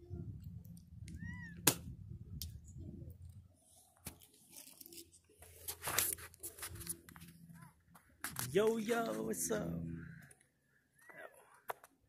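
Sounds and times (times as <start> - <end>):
low rumbling on microphone: 0.0 - 3.5.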